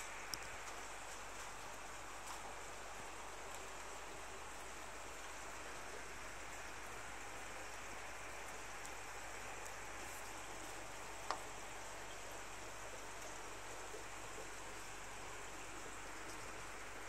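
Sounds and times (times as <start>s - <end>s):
faint ticks: 0.0s - 2.5s, 9.6s - 11.6s
soft rush of water: 0.0s - 17.0s.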